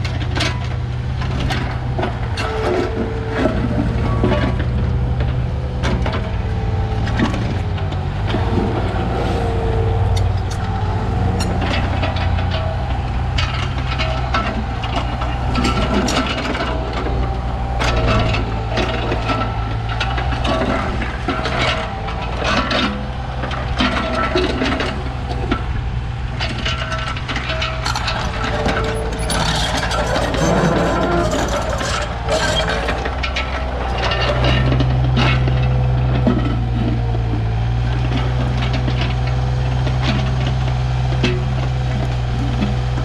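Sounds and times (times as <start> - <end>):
diesel engine running: 0.0 - 43.0
bucket clanks and scrapes: 26.4 - 40.6.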